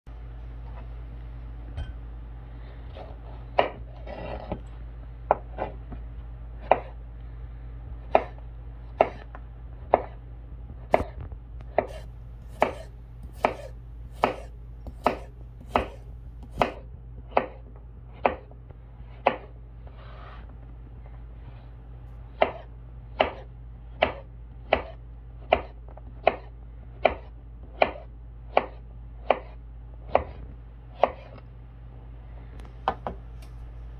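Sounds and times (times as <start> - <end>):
slices scraped on board: 2.9 - 4.6, 11.8 - 17.6, 31.0 - 31.4
knife chopping on cutting board: 3.0 - 4.6, 6.6 - 7.0, 8.1 - 9.3, 9.9 - 10.2, 10.9 - 18.5, 19.2 - 19.6, 22.4 - 30.4, 31.0 - 31.4.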